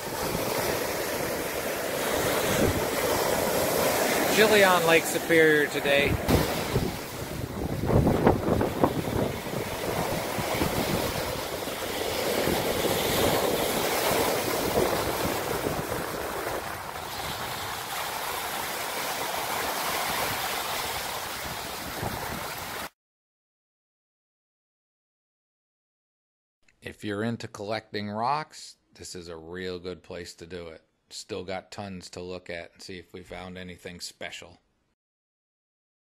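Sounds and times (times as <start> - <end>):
wind on microphone: 0.0 - 4.3, 5.8 - 18.8, 19.8 - 22.8
waves breaking on pebble beach: 0.0 - 22.9.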